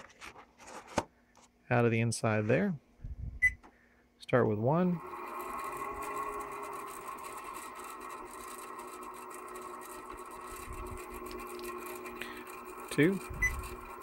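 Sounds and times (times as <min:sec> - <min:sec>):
motor running hum: 0:04.5 - 0:14.0.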